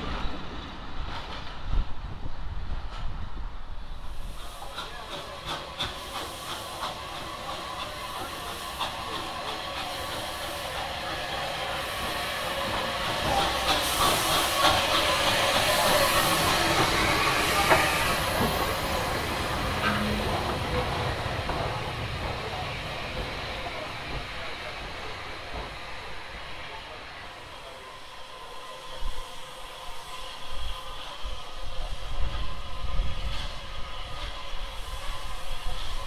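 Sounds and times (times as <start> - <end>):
train wheels clicking on rails: 0.0 - 26.4
hiss of steam: 2.8 - 36.0.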